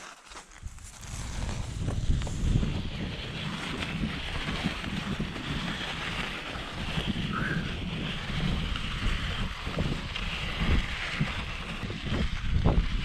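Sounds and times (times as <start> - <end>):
bike tyres rolling on gravel: 0.0 - 13.0
wind rushing over microphone: 0.6 - 13.0.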